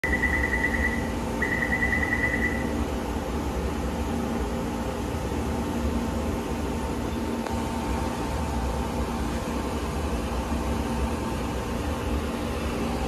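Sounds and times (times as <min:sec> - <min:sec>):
rapid high-pitched electronic beeping: 0:00.0 - 0:02.8
train and ventilation hum: 0:00.0 - 0:13.0.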